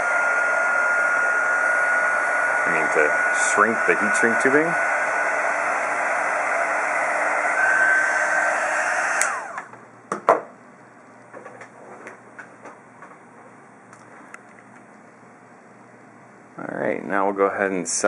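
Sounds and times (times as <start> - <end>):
hot air gun blowing: 0.0 - 9.7.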